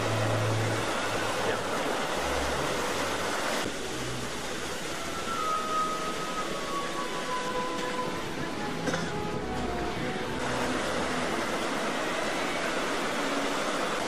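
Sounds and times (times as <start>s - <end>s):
sea surf breaking: 9.6s - 14.0s.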